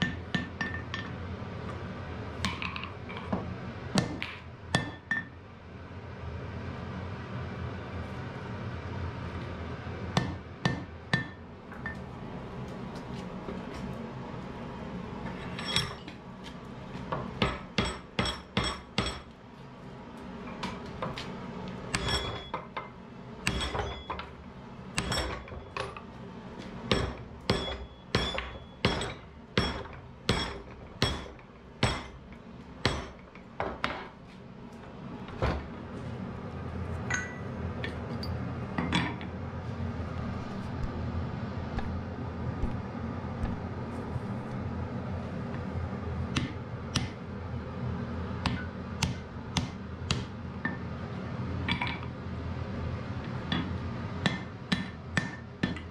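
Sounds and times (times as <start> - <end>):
hammer striking hot metal: 0.0 - 1.2, 4.8 - 5.4, 10.2 - 11.4, 17.4 - 19.3, 21.9 - 24.3, 25.0 - 26.0, 26.9 - 34.1, 48.4 - 50.8, 53.5 - 55.9.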